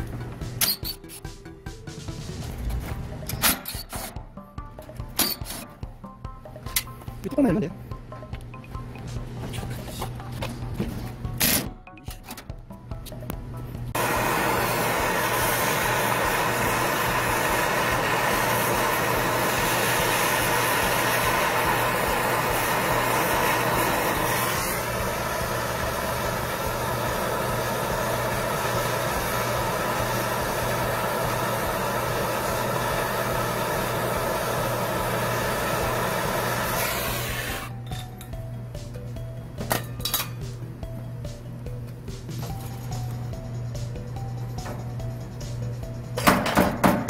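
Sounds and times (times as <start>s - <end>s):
gas torch flame roaring: 14.0s - 37.8s.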